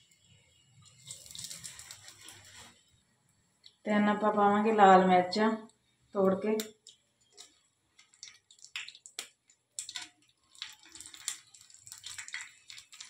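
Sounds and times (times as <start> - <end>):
oil sputtering and crackling in pan: 0.0 - 3.0, 6.6 - 13.0.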